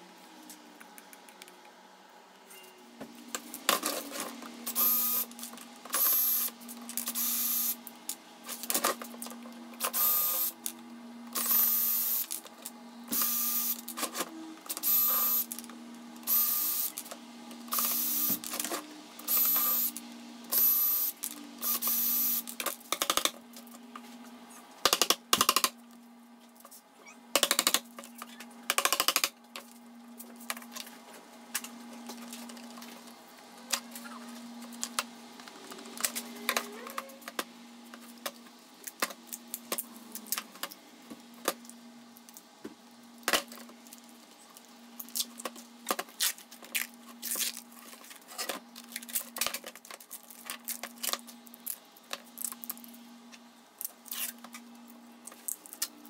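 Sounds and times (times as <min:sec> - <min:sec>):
cordless drill motor whine: 0:04.7 - 0:05.3, 0:09.9 - 0:10.5, 0:11.4 - 0:12.3, 0:13.1 - 0:13.8, 0:14.8 - 0:15.5, 0:16.3 - 0:17.0, 0:17.7 - 0:18.4, 0:19.3 - 0:22.4.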